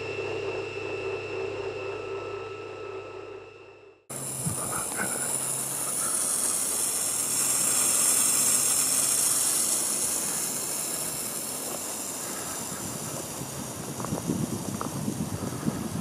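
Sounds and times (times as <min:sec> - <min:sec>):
airy hiss: 0:04.1 - 0:16.0.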